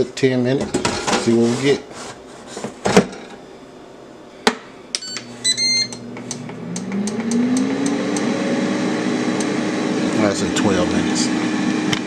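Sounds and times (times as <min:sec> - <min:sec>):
control panel beeps: 0:05.0 - 0:06.0
air fryer fan motor hum: 0:05.3 - 0:12.0.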